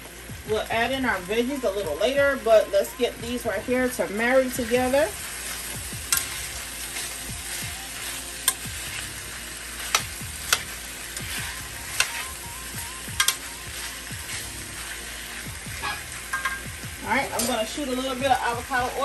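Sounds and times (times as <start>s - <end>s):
food sizzling in a pan: 0.0s - 19.0s
metal spatula clicking on pan: 6.1s - 6.3s, 8.4s - 8.7s, 9.9s - 10.7s, 13.2s - 13.5s, 17.4s - 17.6s.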